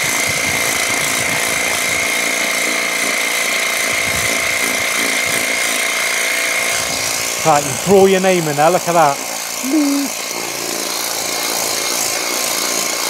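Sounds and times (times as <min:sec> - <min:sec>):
pressure washer pump whine: 0:00.0 - 0:13.0
water jet hissing: 0:07.0 - 0:11.2.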